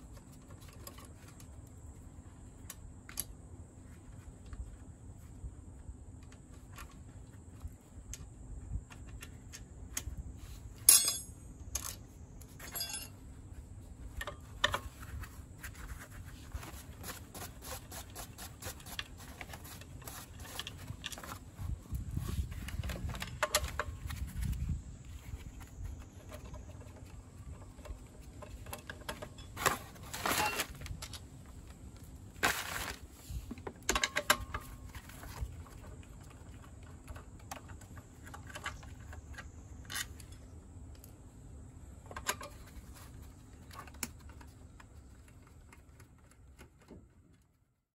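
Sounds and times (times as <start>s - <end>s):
metal tools clanking together: 10.8s - 12.0s, 12.6s - 13.2s.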